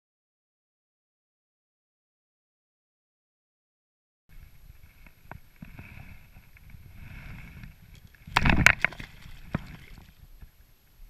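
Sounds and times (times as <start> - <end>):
faint water and handling sounds: 4.6 - 10.7.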